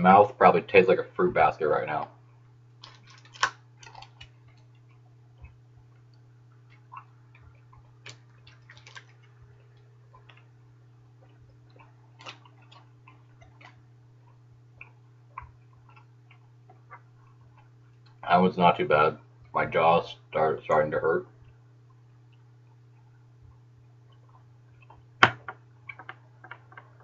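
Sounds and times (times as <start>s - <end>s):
steady low hum: 0.0s - 27.0s
mouth chewing bubble gum: 2.8s - 18.3s, 21.4s - 25.2s.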